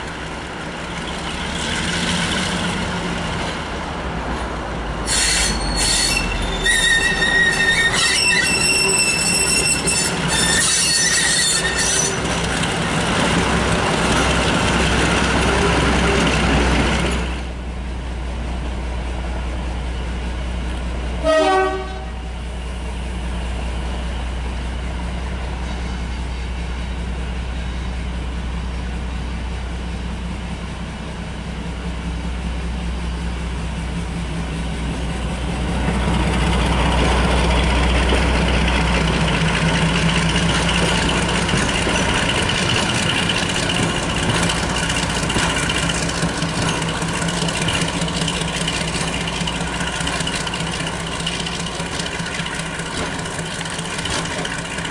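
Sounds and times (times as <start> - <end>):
locomotive passing: 0.0 - 54.9
wheels squealing: 5.0 - 17.4, 34.8 - 54.9
train horn blast: 21.2 - 22.4
diesel engine idling hum: 22.1 - 54.9.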